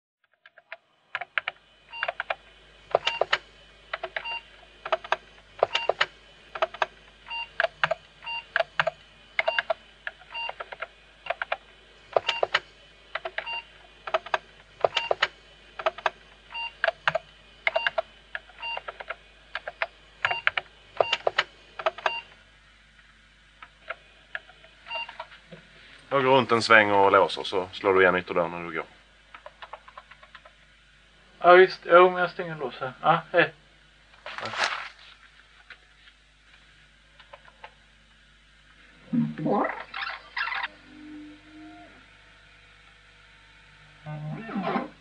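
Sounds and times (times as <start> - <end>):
sharp clicks with short beeps: 6.8 - 11.5, 12.2 - 12.6, 14.8 - 15.3, 16.6 - 18.0, 18.6 - 19.7, 20.3 - 22.3.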